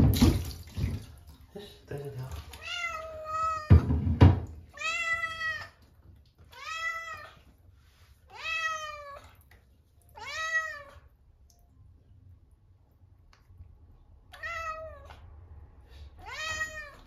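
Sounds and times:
cat meowing: 2.6 - 4.0, 4.7 - 5.8, 6.4 - 7.5, 8.3 - 9.4, 10.1 - 11.1, 14.3 - 15.3, 16.2 - 17.0.

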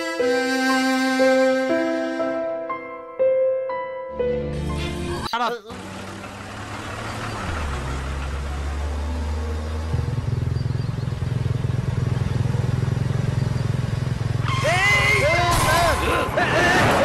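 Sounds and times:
vehicles on a road: 4.4 - 17.0.

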